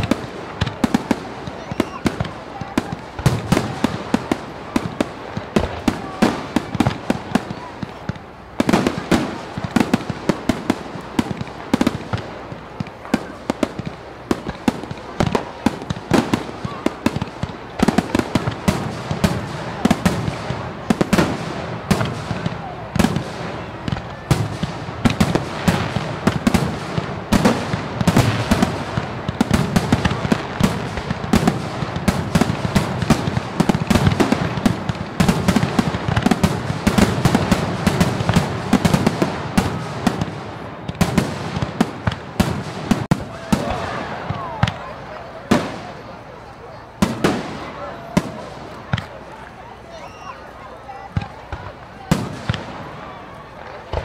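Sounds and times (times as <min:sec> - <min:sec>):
fireworks bangs and crackling: 0:00.0 - 0:54.0.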